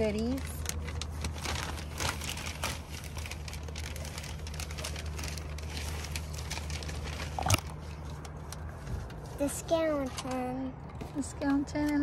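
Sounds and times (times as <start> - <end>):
plastic bag crinkling: 0.0 - 9.2.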